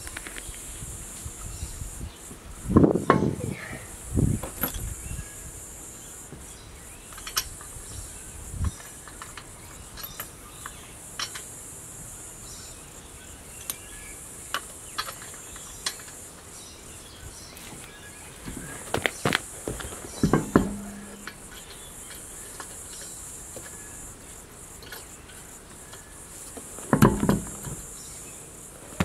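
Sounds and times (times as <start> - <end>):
high insect chorus: 0.0 - 29.0
metallic clicks of lug nuts: 7.1 - 7.7, 20.1 - 23.8, 24.8 - 27.8
dull knock: 20.2 - 21.4.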